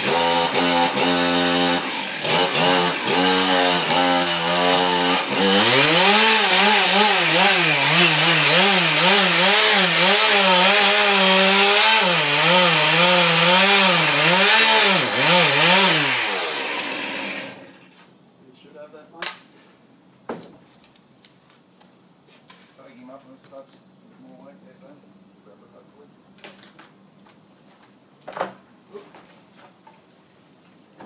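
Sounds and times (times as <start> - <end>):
chainsaw cutting tree trunk: 0.0 - 17.8.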